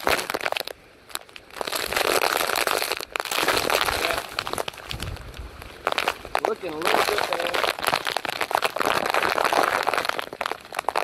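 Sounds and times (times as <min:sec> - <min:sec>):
heavy driving rain: 0:03.2 - 0:11.0
wind buffeting microphone: 0:03.6 - 0:06.4.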